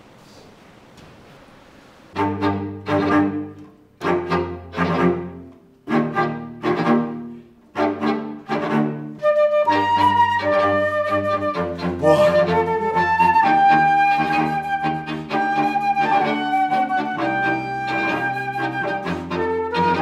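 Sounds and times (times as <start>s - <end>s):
flute high notes: 9.2s - 20.0s
bowed string chords: 11.5s - 13.2s.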